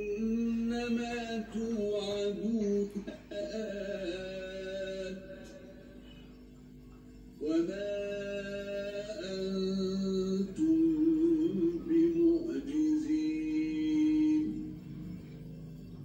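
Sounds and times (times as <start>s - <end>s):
man chanting recitation: 0.0s - 6.0s, 7.4s - 15.3s.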